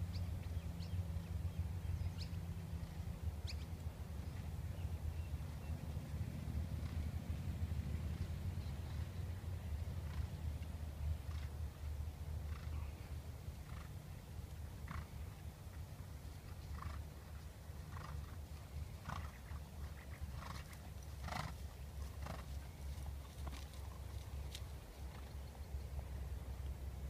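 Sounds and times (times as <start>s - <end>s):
steady low rumble: 0.0s - 27.0s
horse hooves on sand: 13.6s - 15.2s, 16.2s - 25.4s.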